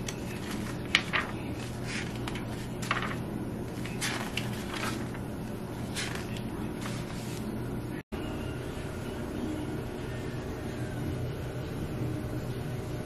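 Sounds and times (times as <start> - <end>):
notebook pages flipping: 0.0 - 7.5
steady low hum: 0.0 - 13.0.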